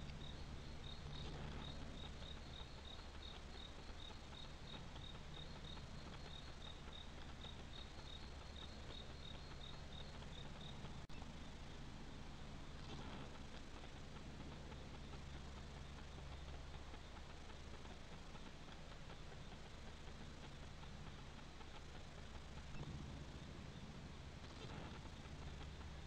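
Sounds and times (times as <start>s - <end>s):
cricket chirping: 0.0s - 11.0s
faint low hum: 0.0s - 26.0s.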